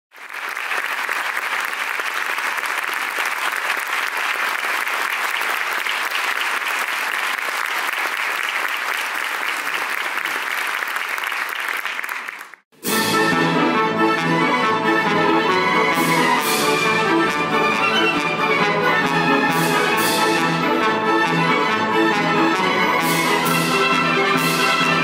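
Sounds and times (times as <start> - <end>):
audience applauding: 0.1 - 12.6.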